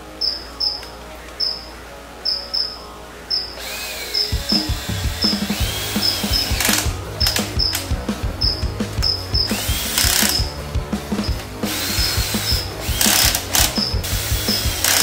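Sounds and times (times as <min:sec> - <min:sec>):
cordless drill whirring: 0:03.6 - 0:07.8, 0:09.4 - 0:10.4, 0:11.7 - 0:15.0
background music with beat: 0:03.6 - 0:15.0.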